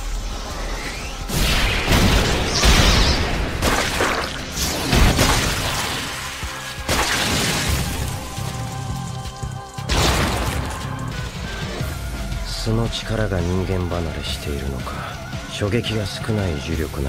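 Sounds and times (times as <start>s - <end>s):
dramatic background music: 0.0s - 17.0s
heavy crashing punch impacts: 9.9s - 10.8s.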